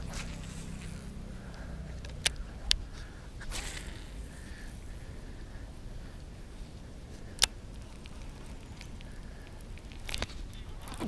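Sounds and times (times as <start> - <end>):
fishing rod swish: 0.0 - 1.0, 3.4 - 4.5
line running off reel: 0.0 - 11.0
wind rumble: 0.0 - 11.0.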